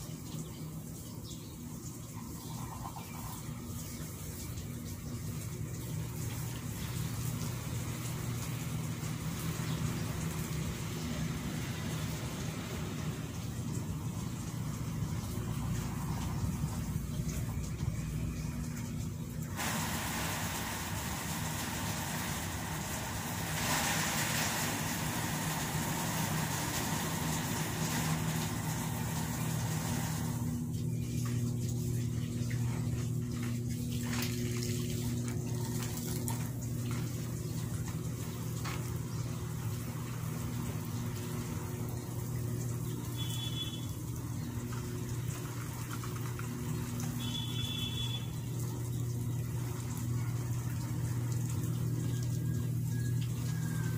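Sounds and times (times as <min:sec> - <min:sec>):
engine humming: 0:02.5 - 0:53.9
broad hiss: 0:19.6 - 0:30.4.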